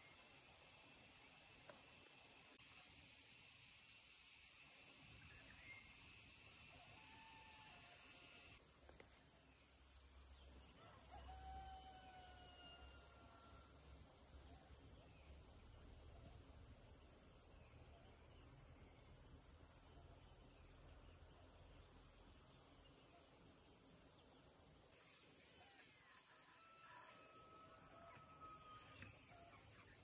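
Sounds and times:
insects hissing: 0.0s - 8.6s
faint rooster crowing: 6.7s - 8.6s, 10.8s - 13.8s, 25.6s - 29.6s.

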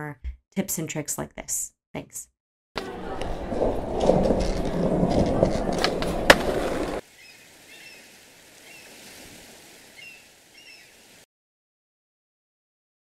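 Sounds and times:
skateboard clacks and knock: 2.8s - 7.0s
skateboard rolling on hard floor: 2.8s - 7.0s.

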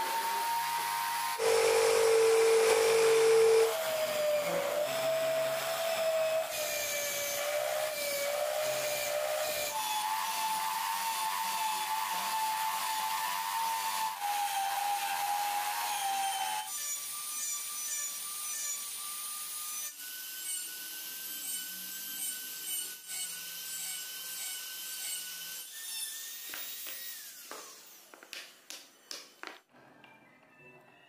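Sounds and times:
wood lathe whining: 0.0s - 16.7s
chisel cutting spinning wood: 1.2s - 8.8s.

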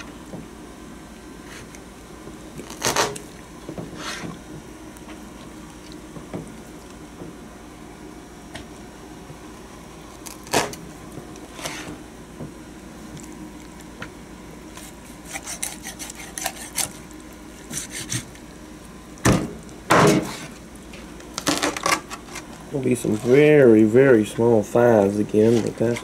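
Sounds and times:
knife cutting chicken bone: 15.2s - 17.0s, 17.7s - 18.3s.

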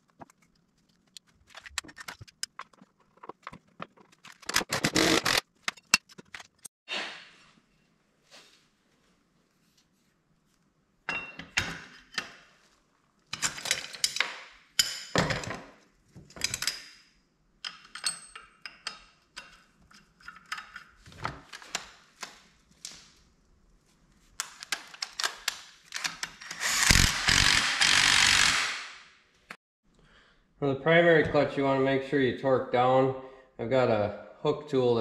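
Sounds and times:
metal tools clinking: 13.3s - 15.5s, 17.6s - 21.0s
cordless power driver whirring: 26.5s - 28.7s.

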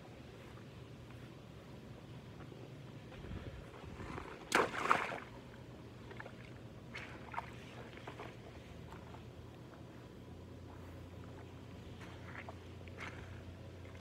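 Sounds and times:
boots squelching in mud: 6.1s - 9.8s, 10.6s - 14.0s.

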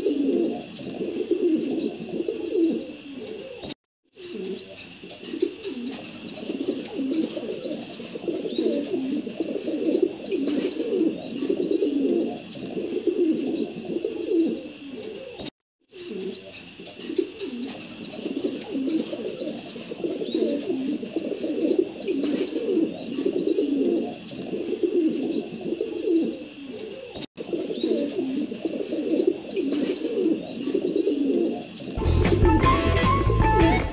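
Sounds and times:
pigeons cooing: 0.0s - 33.9s
guitar music: 32.0s - 33.9s.

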